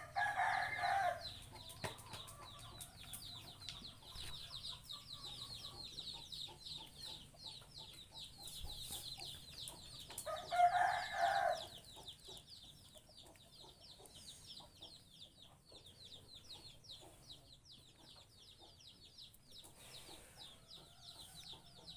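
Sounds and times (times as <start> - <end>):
rooster crowing: 0.0 - 1.2, 10.3 - 11.7
small birds chirping: 0.0 - 21.9.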